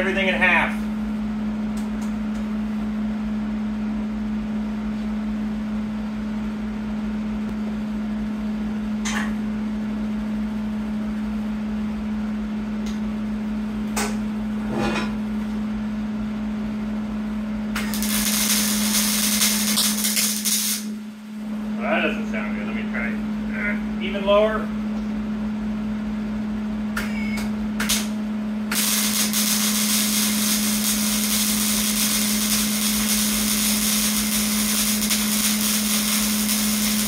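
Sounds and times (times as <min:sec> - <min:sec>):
welding hiss and crackle: 0:17.8 - 0:21.0, 0:28.7 - 0:37.0.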